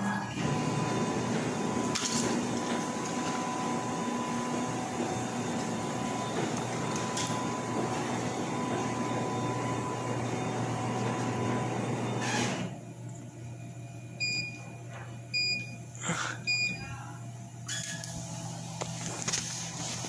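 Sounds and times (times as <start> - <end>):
laser cutter humming: 0.1 - 14.0.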